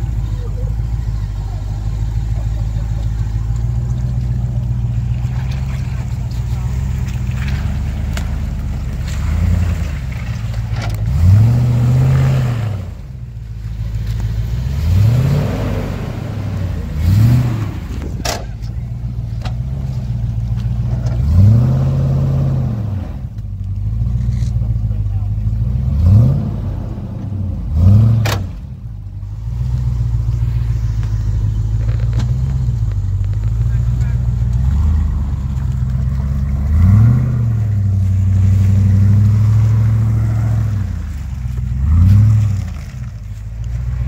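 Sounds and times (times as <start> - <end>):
engine revving under load: 0.0 - 44.0
tyres churning through mud: 0.0 - 44.0.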